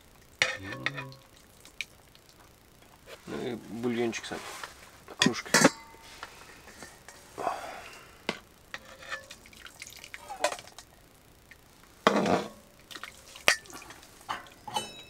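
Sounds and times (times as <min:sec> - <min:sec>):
dishes clinking: 0:00.4 - 0:01.3, 0:05.2 - 0:07.2, 0:13.4 - 0:15.0
liquid splashing and dripping: 0:01.0 - 0:02.5, 0:09.2 - 0:10.9, 0:12.8 - 0:14.7
broth pouring: 0:08.7 - 0:14.8.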